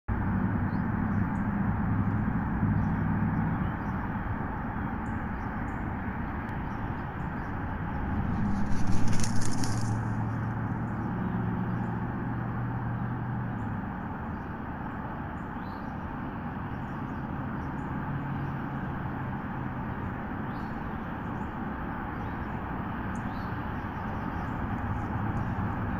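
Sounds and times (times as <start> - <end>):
steady low hum: 3.7 - 11.2
eagle wings flapping: 8.2 - 10.4.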